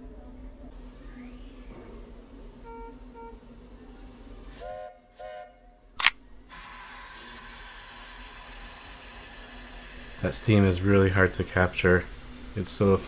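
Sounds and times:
steam locomotive chime whistle: 4.6 - 5.6
camera shutter click: 6.0 - 6.2.

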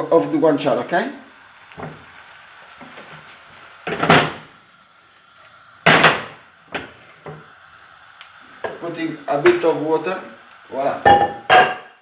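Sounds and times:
frying pan tossing rush: 0.2 - 12.0
wooden spoon knocking pan: 8.6 - 8.8, 11.0 - 12.0.

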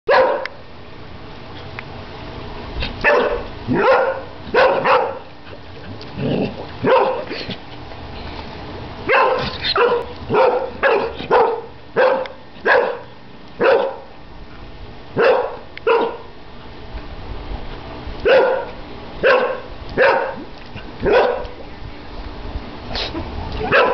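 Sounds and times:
dog barking: 0.1 - 0.6, 3.0 - 5.3, 6.8 - 7.3, 9.1 - 14.1, 15.2 - 16.3, 18.3 - 20.4, 21.0 - 21.5, 23.7 - 23.9.

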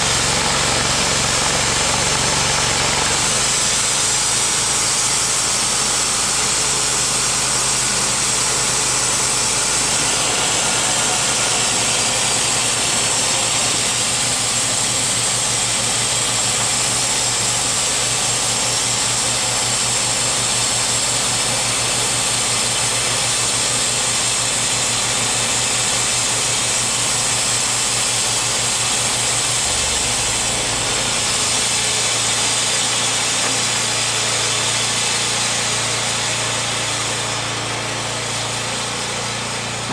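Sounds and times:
bandsaw mill engine running: 0.0 - 39.9
saw blade hissing: 3.2 - 19.3.

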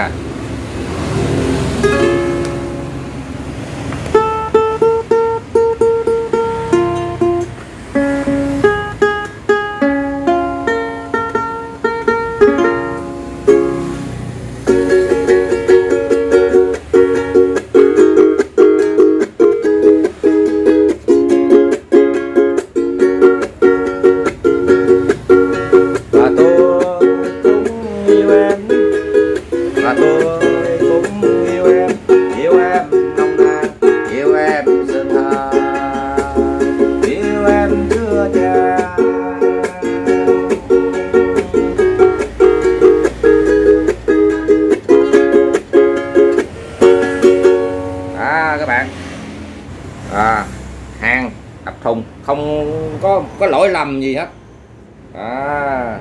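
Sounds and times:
ukulele strumming: 1.1 - 49.1
man's voice: 29.8 - 40.1, 50.1 - 54.2.

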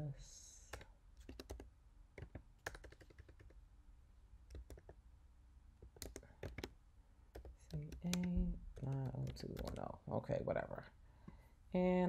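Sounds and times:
faint keyboard typing: 0.7 - 3.6, 4.4 - 5.0, 5.8 - 10.0.

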